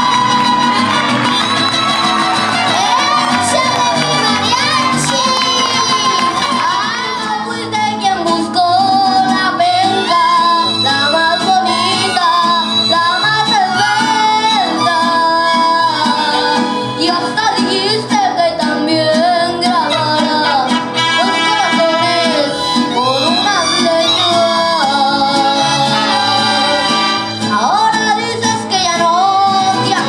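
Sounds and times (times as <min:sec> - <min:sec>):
guitars: 0:00.0 - 0:30.0
violins: 0:00.0 - 0:30.0
trumpets: 0:19.9 - 0:24.2.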